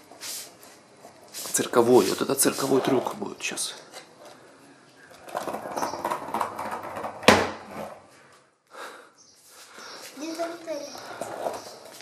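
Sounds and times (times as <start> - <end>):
skateboard wheels rolling on tile: 0.0 - 8.5, 9.4 - 12.0.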